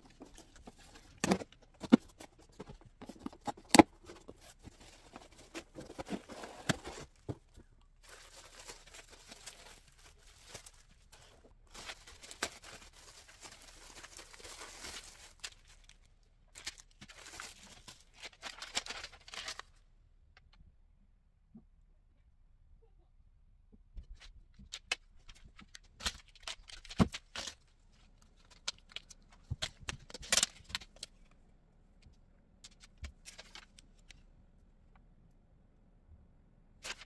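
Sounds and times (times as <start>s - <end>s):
packaging crinkling and tearing: 0.1s - 7.4s, 8.0s - 19.8s.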